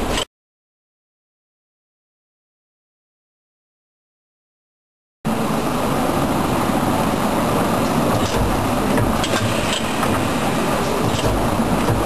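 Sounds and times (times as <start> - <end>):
machinery running with low rumble: 5.3 - 12.0
sharp mechanical clicks: 8.2 - 12.0.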